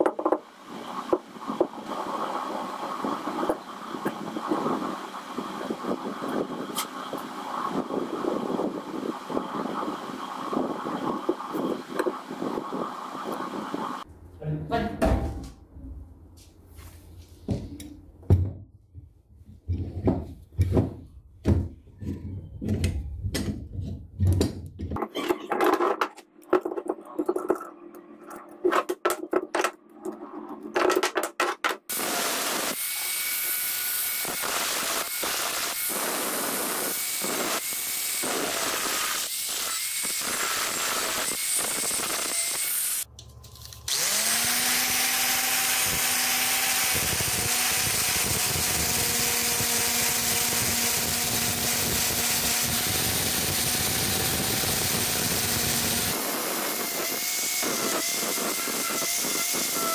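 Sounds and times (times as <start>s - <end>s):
power tool running: 31.9s - 43.1s, 43.9s - 59.9s
angle grinder sanding: 43.9s - 59.9s.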